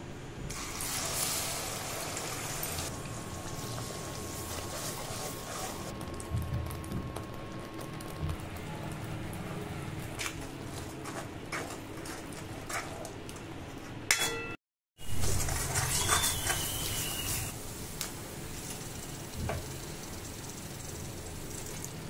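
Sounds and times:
ladle clinking against pan: 14.1 - 14.6.

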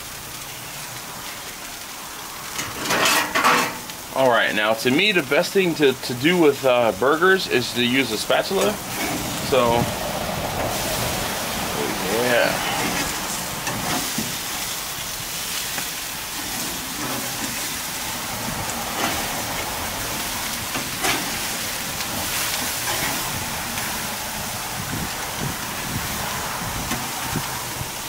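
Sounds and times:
burgers sizzling on a grill: 0.0 - 28.0
metal spatula scraping grate: 2.5 - 4.0, 8.5 - 9.8, 12.1 - 14.8, 15.5 - 18.0, 18.8 - 23.9.

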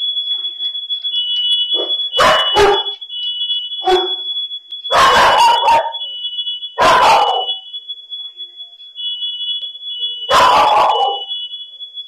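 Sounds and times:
smoke alarm tone: 0.0 - 12.0
dog barking: 2.2 - 3.0, 3.8 - 4.2, 4.9 - 6.0, 6.8 - 7.6, 10.3 - 11.3.

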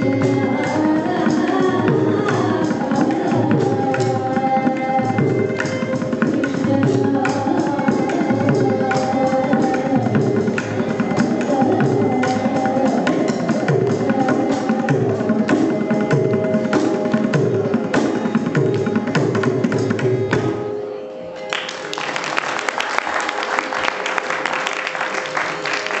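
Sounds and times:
person singing: 0.0 - 19.3
mridangam strokes: 0.0 - 20.8
audience applause: 21.5 - 26.0.

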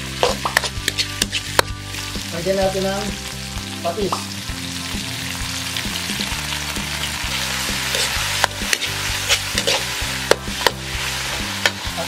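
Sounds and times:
food sizzling in hot oil: 0.0 - 12.0
metal spatula scraping wok: 0.2 - 1.6, 7.3 - 12.0.

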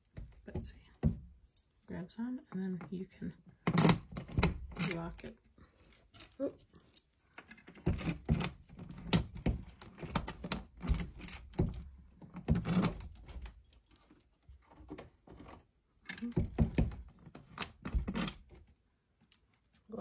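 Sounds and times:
cabinet door knocks and clicks: 7.8 - 13.5, 16.2 - 18.4.

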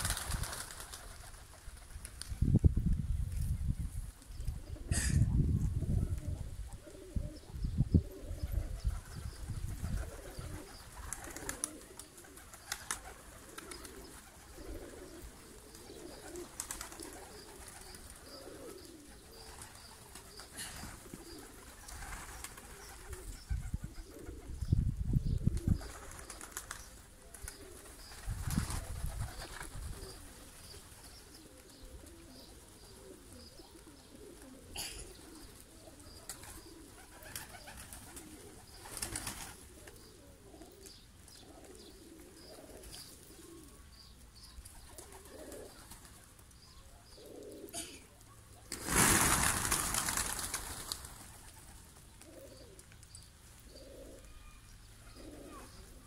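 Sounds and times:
pigeons cooing: 4.4 - 56.0.

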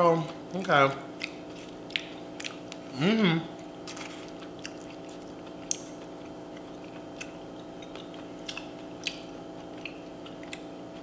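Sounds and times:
chewing soft food: 0.1 - 11.0
wet mouth clicks and smacks: 5.6 - 6.0.

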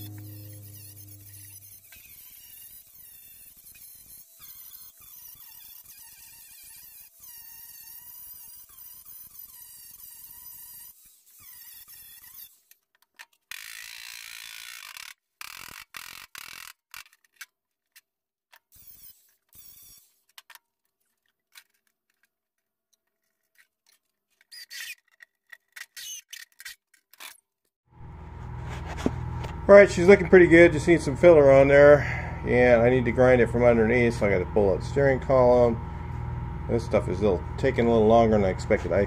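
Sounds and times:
angle grinder grinding metal: 0.0 - 12.8, 18.7 - 20.4, 28.0 - 39.0.

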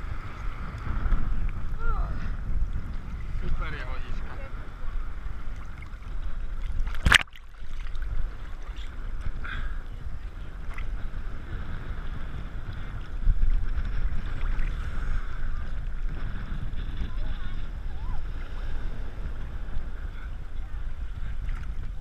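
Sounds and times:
sea water sloshing and lapping: 0.0 - 22.0
small splashes and drips: 6.6 - 8.9
sharp splash: 6.8 - 8.0.

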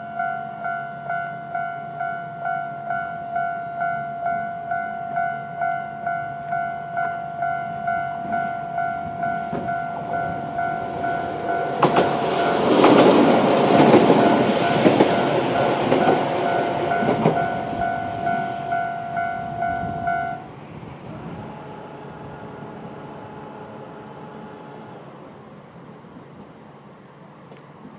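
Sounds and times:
level-crossing alarm bell: 0.0 - 20.5
train passing with rush: 0.0 - 27.9.

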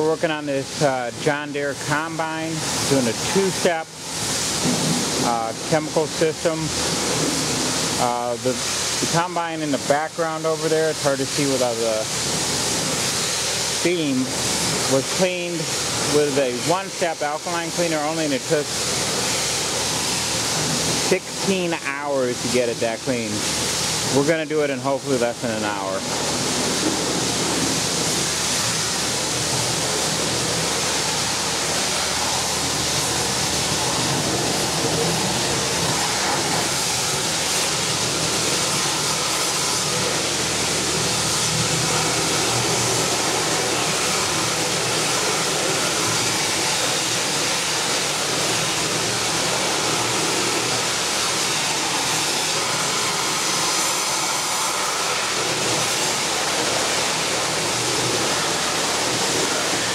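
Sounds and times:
pressure washer water spray hiss: 0.0 - 59.9
low machine hum: 22.4 - 59.9.

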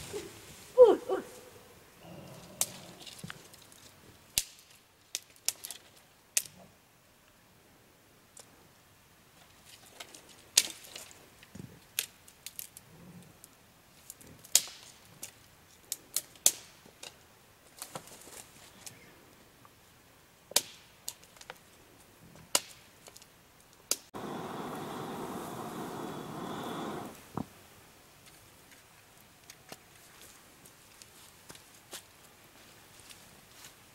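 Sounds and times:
wood fire crackling: 22.5 - 32.4.

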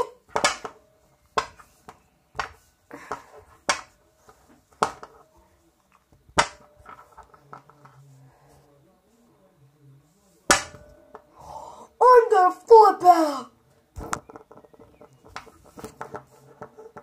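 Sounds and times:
plastic figures knocking together: 0.3 - 0.8, 2.4 - 4.0, 4.8 - 5.2, 6.3 - 7.9, 10.5 - 11.3, 14.0 - 17.0.

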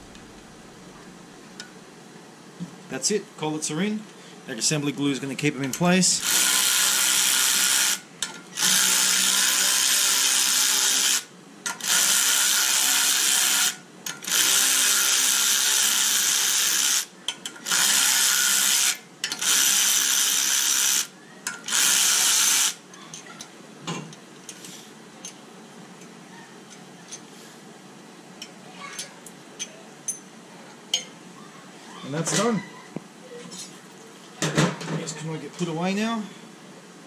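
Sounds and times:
cordless drill spinning: 6.2 - 22.8
metal tools clicking and knocking: 8.2 - 8.5, 17.3 - 17.7, 19.2 - 19.4, 21.4 - 21.7.

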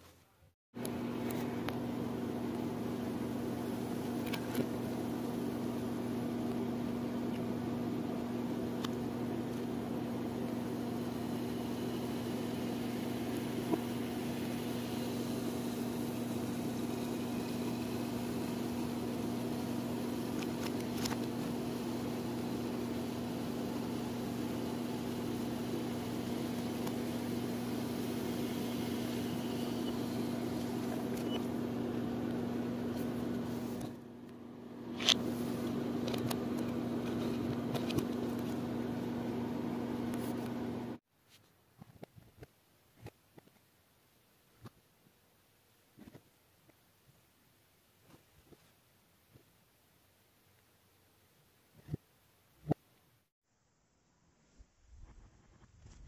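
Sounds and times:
electrical hum with low buzz: 0.8 - 41.0.

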